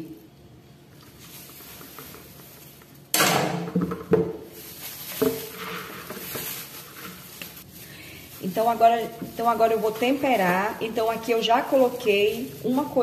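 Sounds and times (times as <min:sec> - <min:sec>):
grain sliding into bowl: 0:04.6 - 0:13.0.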